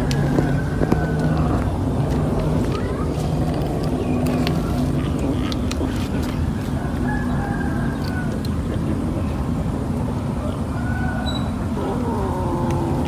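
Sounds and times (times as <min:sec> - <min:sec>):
faint rooster crowing: 0:00.0 - 0:01.6, 0:06.7 - 0:08.4, 0:10.4 - 0:13.0
steady low rumble: 0:00.0 - 0:10.8, 0:11.5 - 0:13.0.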